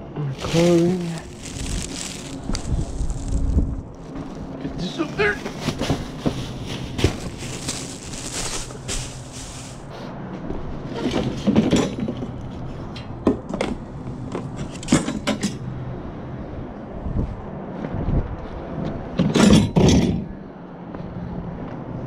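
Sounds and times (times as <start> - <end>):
rustling of household items: 0.3 - 10.0.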